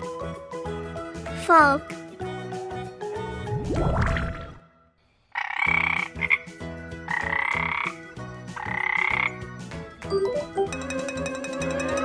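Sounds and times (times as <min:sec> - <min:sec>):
frog croaking: 0:05.3 - 0:06.5, 0:07.1 - 0:08.0, 0:08.6 - 0:09.4.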